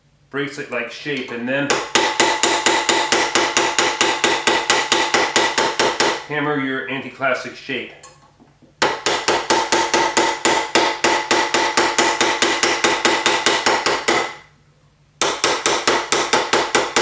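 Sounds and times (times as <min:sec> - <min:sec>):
mallet hammering metal: 0:01.7 - 0:06.3, 0:08.8 - 0:14.4, 0:15.2 - 0:17.0.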